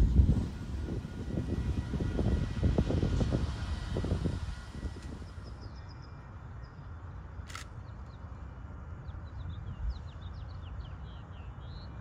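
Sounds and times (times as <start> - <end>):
low rumble: 0.0 - 5.5.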